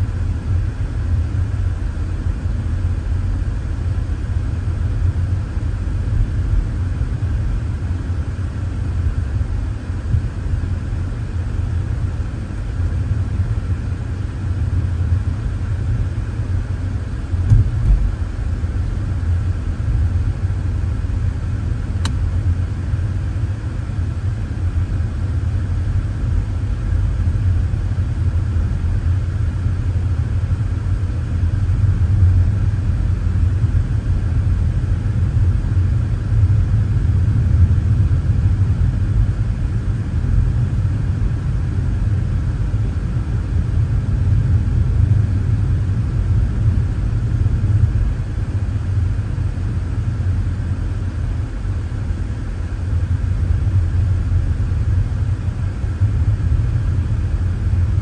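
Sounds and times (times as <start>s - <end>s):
car interior road rumble: 17.3s - 19.3s.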